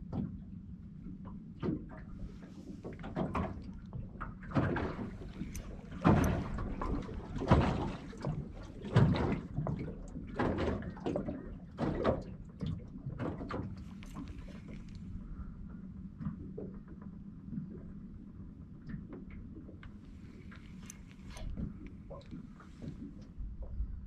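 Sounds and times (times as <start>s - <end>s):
ripples slapping boat hull: 1.1s - 15.5s.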